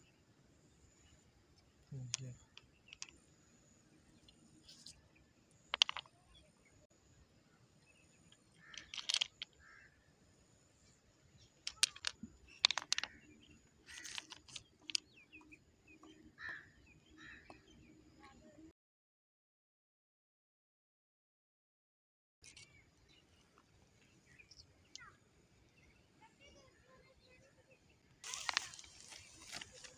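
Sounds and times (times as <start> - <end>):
pebbles clicking together: 1.9 - 3.2, 5.6 - 6.1, 8.3 - 9.8, 11.6 - 15.2, 28.2 - 29.9.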